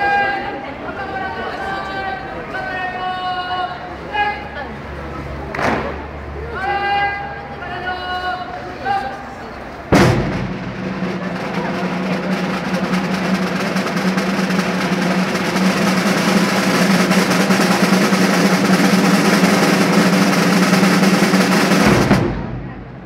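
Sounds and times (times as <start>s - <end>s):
drum roll: 9.9s - 23.0s.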